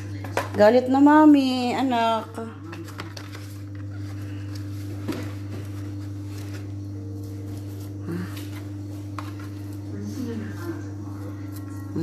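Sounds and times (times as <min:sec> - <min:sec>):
low hum: 0:01.1 - 0:12.0.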